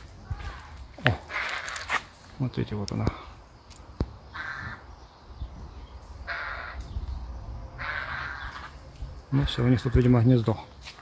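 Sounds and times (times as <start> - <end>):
crow cawing: 0.3 - 2.0, 4.3 - 4.9, 6.2 - 6.9, 7.8 - 8.8, 9.6 - 10.2.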